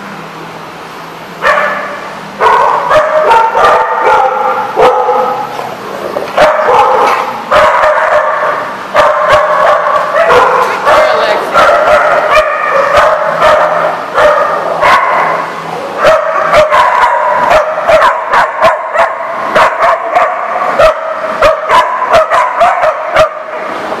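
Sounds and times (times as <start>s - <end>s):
dogs yelping: 1.4s - 23.6s
dogs barking: 1.4s - 23.8s.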